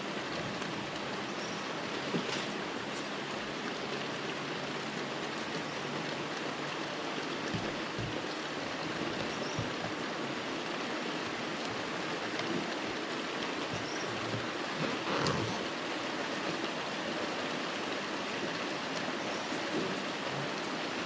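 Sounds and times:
rain falling on trees: 0.0 - 21.0
soft thumps: 7.5 - 8.3.

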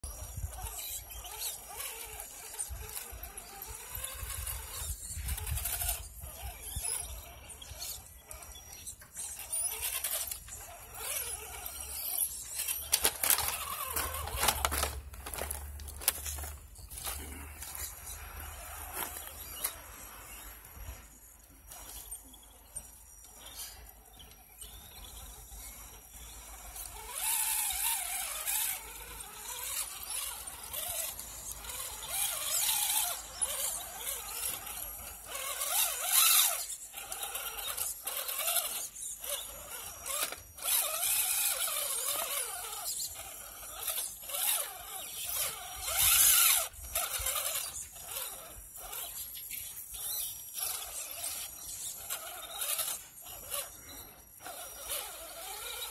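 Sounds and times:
electric motor whining: 0.0 - 55.9
tyres scrabbling in snow: 0.1 - 22.2.

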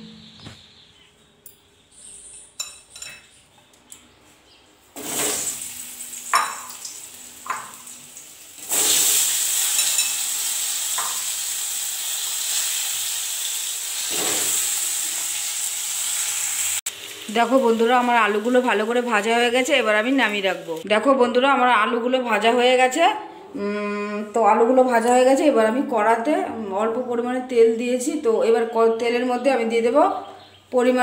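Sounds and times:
potatoes sizzling in hot oil: 5.0 - 20.8.

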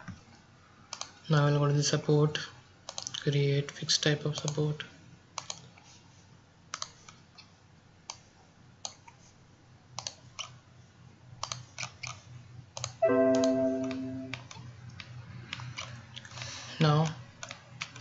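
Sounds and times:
mouse and keyboard clicking: 5.4 - 5.6, 6.7 - 7.5
electronic chime: 13.0 - 14.4.

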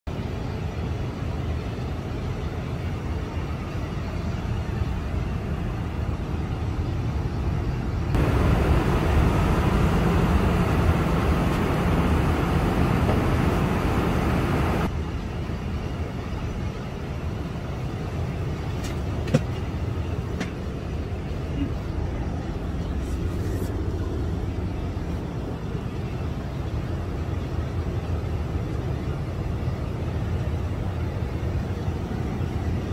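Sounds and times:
airliner cabin engine rumble: 0.1 - 32.9
loud hissy rush: 8.2 - 14.9.

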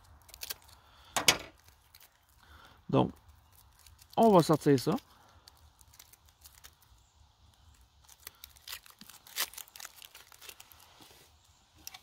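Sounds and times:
foil packet crinkling: 0.0 - 12.0.

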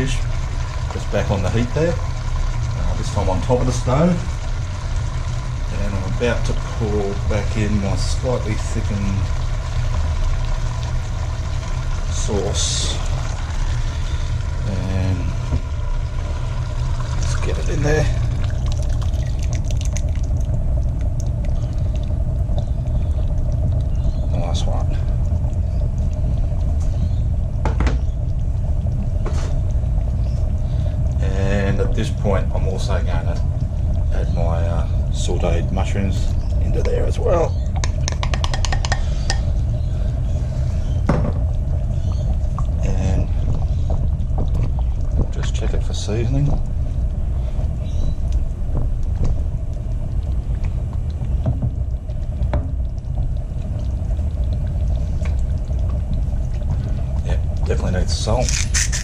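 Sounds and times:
steady low rumble: 0.0 - 59.0
wooden spoon knocking metal pot: 37.8 - 39.5.

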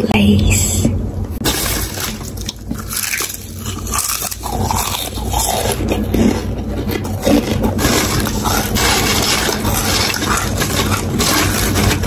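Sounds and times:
chips being crunched: 1.4 - 12.0
potato chips crackling: 1.4 - 12.0.

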